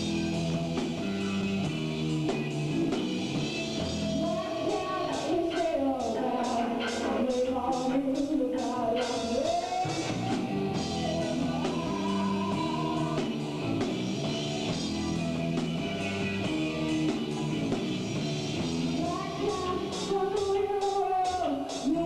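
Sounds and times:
drum kit: 0:00.0 - 0:22.0
electric guitar: 0:00.0 - 0:22.0
person singing: 0:04.0 - 0:17.8, 0:18.8 - 0:22.0.

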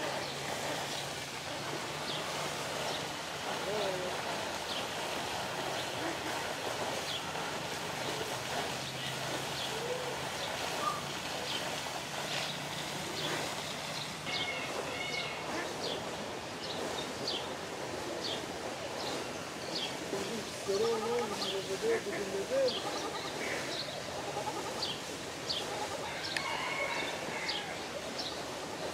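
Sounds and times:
birds chirping: 0:00.0 - 0:28.9
bird warbled call: 0:09.0 - 0:11.6, 0:12.3 - 0:16.1.

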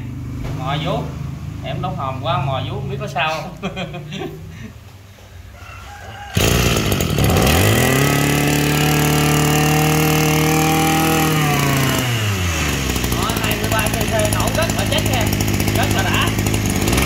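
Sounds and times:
brush cutter engine revving: 0:06.3 - 0:17.0.

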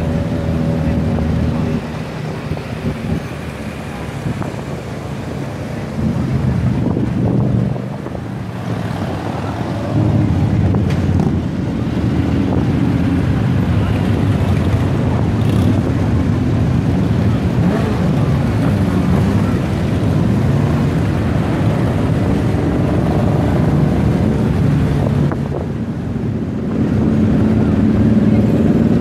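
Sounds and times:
wind buffeting microphone: 0:00.0 - 0:18.5
motorcycle engines running: 0:00.0 - 0:29.0.

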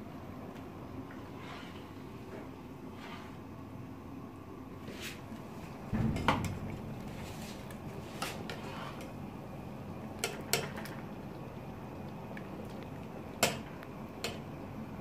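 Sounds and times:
low metal clatter: 0:05.8 - 0:09.2
metal ladle scraping stockpot: 0:07.0 - 0:09.2.

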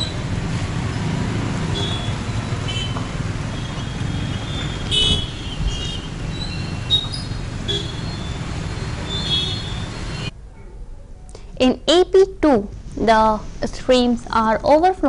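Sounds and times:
low rumble of engines: 0:00.0 - 0:11.6.

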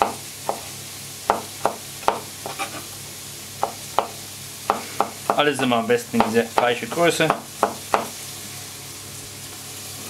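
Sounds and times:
knife chopping on cutting board: 0:00.0 - 0:00.7, 0:01.3 - 0:02.8, 0:03.6 - 0:08.2
frying pan sizzling: 0:00.0 - 0:10.0.

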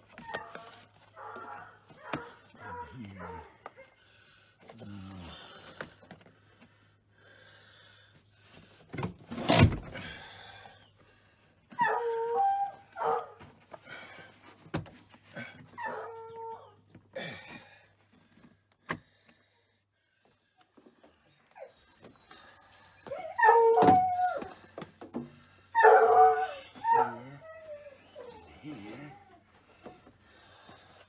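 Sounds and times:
dog whining: 0:11.7 - 0:13.4, 0:15.4 - 0:16.9, 0:21.2 - 0:24.7, 0:25.7 - 0:30.0.

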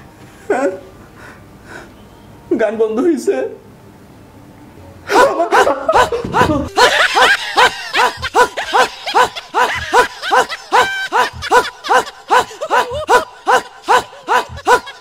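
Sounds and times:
woman making yelping sounds: 0:05.2 - 0:15.0.

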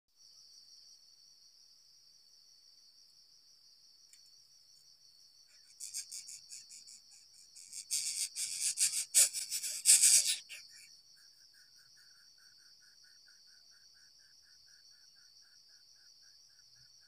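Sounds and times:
insect drone: 0:00.1 - 0:17.0
chick rasping at nest: 0:05.6 - 0:10.9.

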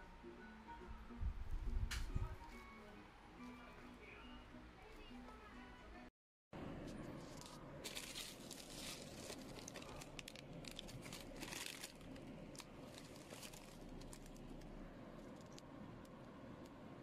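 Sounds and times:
bubble wrap crinkling: 0:07.2 - 0:15.7.

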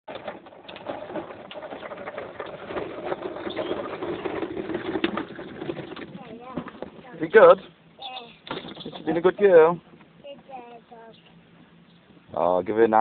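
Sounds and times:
plastic wheels rattling on paving: 0:00.1 - 0:09.8.

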